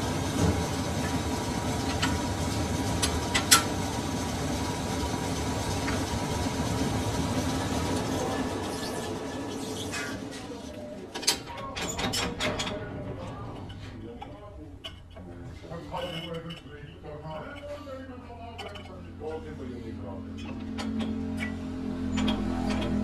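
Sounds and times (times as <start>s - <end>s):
metal lathe humming: 0.0s - 10.7s
sharp clicks and knocks: 3.0s - 3.7s, 20.4s - 23.0s.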